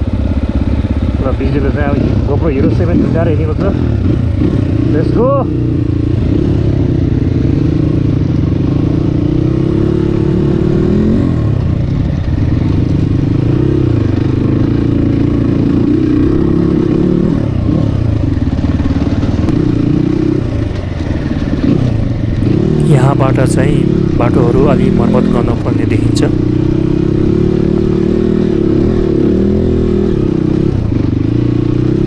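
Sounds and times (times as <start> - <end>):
dirt bike engine revving: 0.0 - 32.0.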